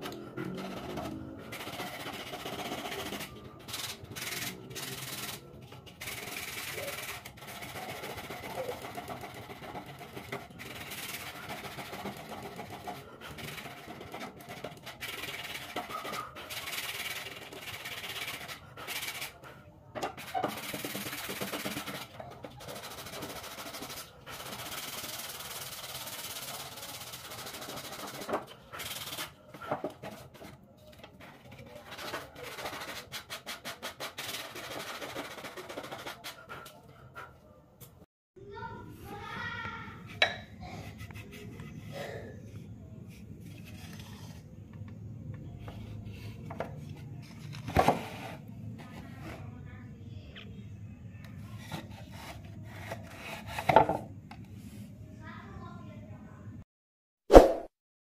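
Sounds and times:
sandpaper rubbing on wood: 0.3 - 19.4, 20.2 - 29.4, 31.4 - 36.5.

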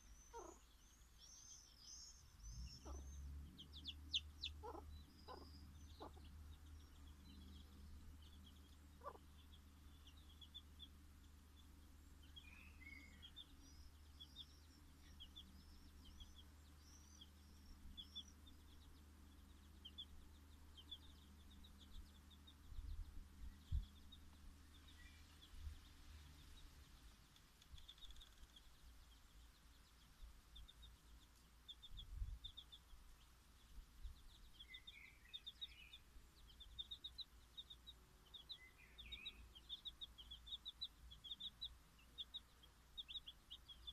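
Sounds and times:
chicks peeping: 0.0 - 43.9
hen clucking: 3.9 - 6.3, 9.0 - 9.4.

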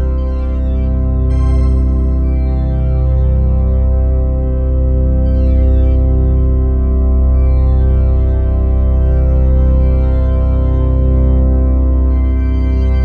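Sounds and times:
deep bass note: 1.0 - 4.0.

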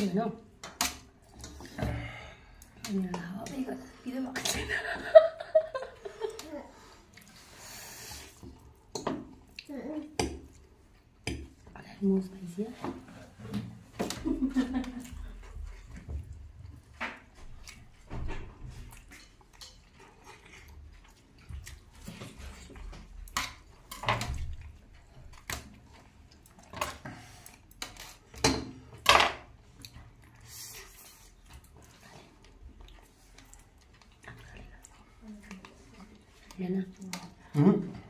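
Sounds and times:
noodles being slurped and chewed: 18.6 - 23.8, 29.6 - 37.5.

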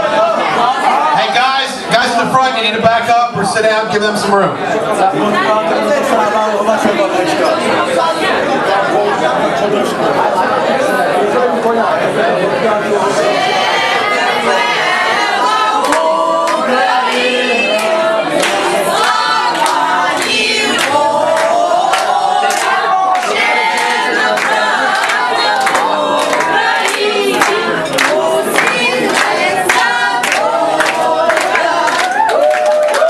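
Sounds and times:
group singing together: 0.0 - 1.6, 4.6 - 33.0
hand claps: 15.8 - 16.6, 17.8 - 33.0.

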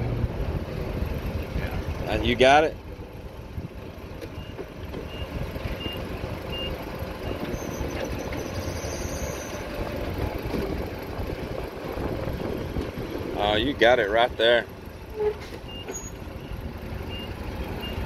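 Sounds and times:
forklift engine running: 0.0 - 18.0
reversing alarm beeps: 4.4 - 8.3, 15.7 - 18.0.

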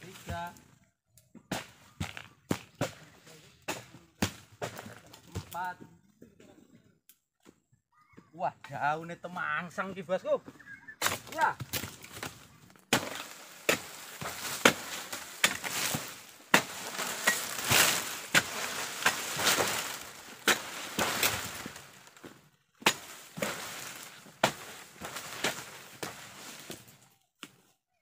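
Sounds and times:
chisel chopping palm fronds: 1.5 - 5.7, 11.0 - 27.6
dry rustle of palm fronds: 11.1 - 27.2.

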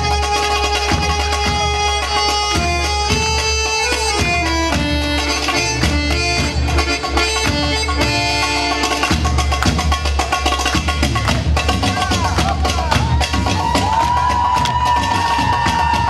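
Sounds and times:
wind instrument melody: 0.0 - 9.6
even beat: 0.0 - 16.0.

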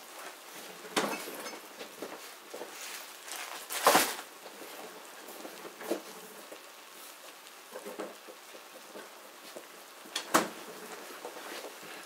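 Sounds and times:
kitchen things clattering: 0.8 - 4.8.

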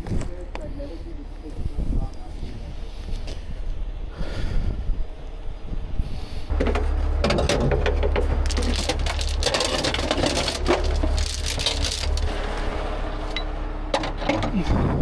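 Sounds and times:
truck engine droning: 0.0 - 15.0
steel chains clinking: 6.5 - 12.3.

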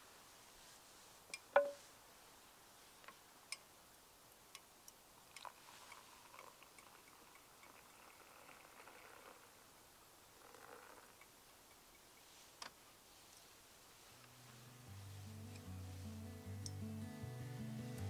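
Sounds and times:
water pouring into a cup: 5.3 - 9.4.

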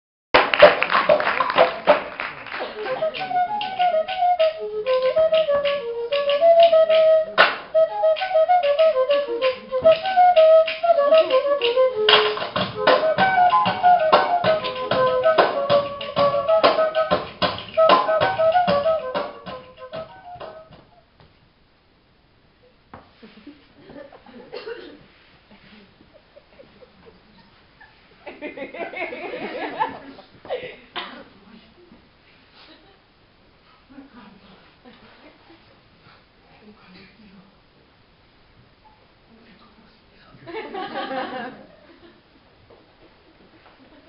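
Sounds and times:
rapid tapping percussion: 0.4 - 20.9
flute-like melody: 2.6 - 21.1.

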